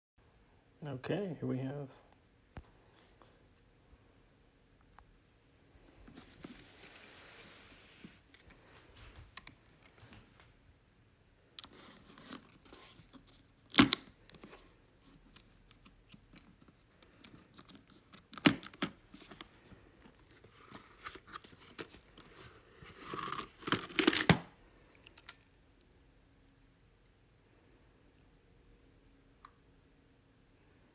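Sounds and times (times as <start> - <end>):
case rustling: 5.8 - 10.3, 11.6 - 25.3.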